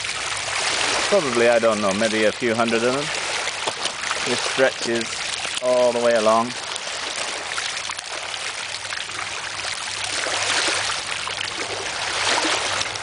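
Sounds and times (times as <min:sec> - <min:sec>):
water trickling among stones: 0:00.0 - 0:13.0
small waves on pebble beach: 0:11.6 - 0:13.0.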